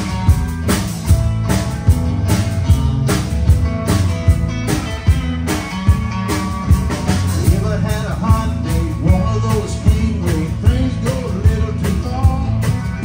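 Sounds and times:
live rock band playing: 0:00.0 - 0:13.0
man singing lead vocal: 0:07.3 - 0:13.0.

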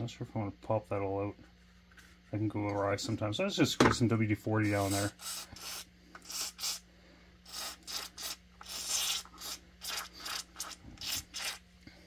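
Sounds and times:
aerosol spray hissing squirts: 0:05.2 - 0:06.8, 0:07.4 - 0:11.6.

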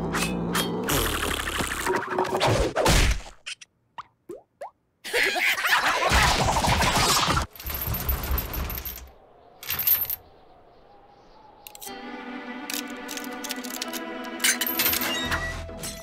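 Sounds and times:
chained metal door rattling: 0:07.5 - 0:10.2, 0:12.8 - 0:16.0.

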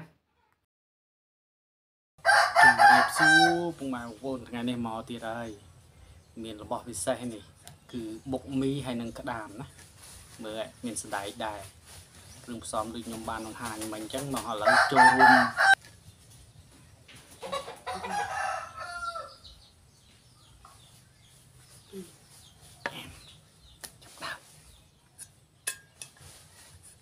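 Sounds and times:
rooster crowing: 0:02.2 - 0:03.7, 0:14.6 - 0:15.8, 0:17.6 - 0:19.5
cutlery clinking on metal plate: 0:25.2 - 0:26.3.

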